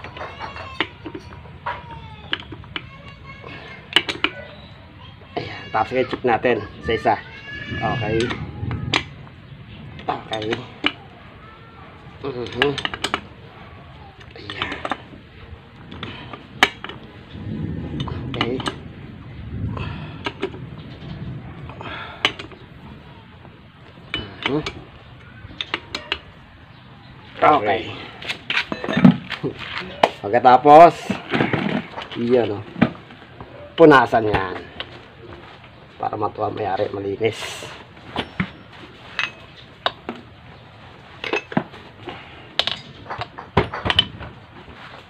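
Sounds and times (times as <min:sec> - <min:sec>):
metal clinks and knocks: 0:00.0 - 0:04.6, 0:28.3 - 0:30.2, 0:37.4 - 0:40.4, 0:41.0 - 0:45.0.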